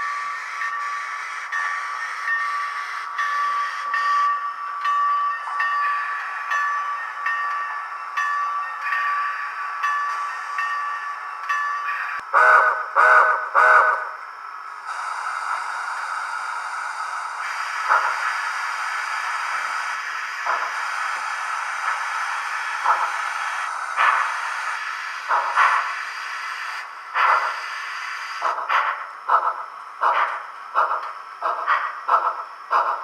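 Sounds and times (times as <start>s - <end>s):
steam hiss: 0.0s - 4.3s, 14.7s - 29.5s
model train whistle toots: 12.3s - 14.1s
steam puffs: 14.8s - 33.0s.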